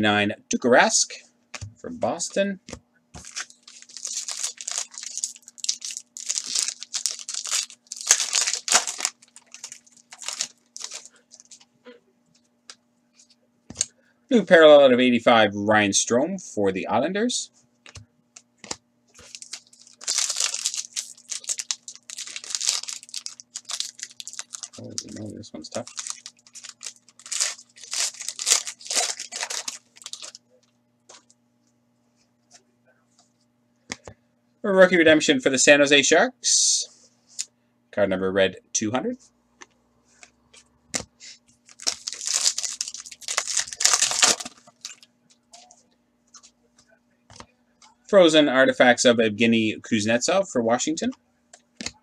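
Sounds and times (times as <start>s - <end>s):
plastic and foil wrapping crinkling: 3.2s - 11.7s, 18.6s - 30.4s, 41.6s - 45.8s.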